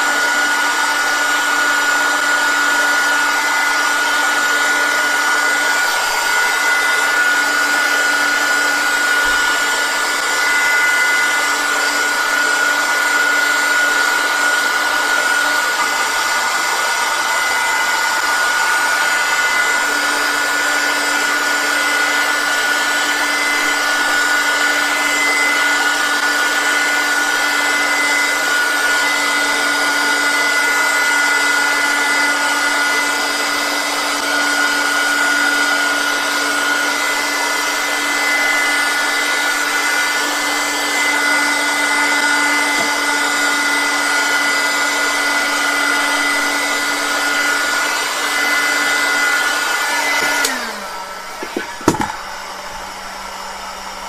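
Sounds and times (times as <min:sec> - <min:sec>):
heat gun blowing hot air: 0:00.0 - 0:54.0.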